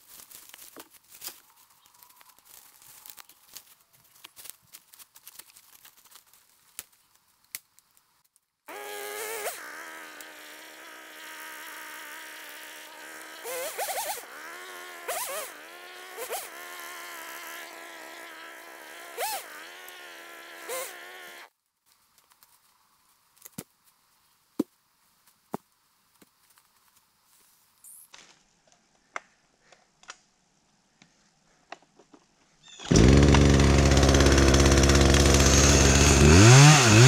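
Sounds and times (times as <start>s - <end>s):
crackling in dry leaves: 0.0s - 8.5s, 12.0s - 28.8s
flying insect buzzing: 8.7s - 21.5s.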